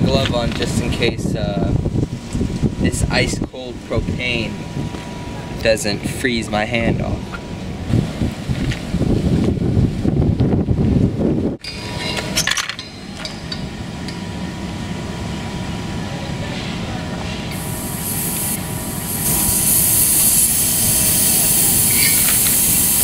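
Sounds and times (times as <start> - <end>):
gas hissing from valve: 17.5 - 23.0.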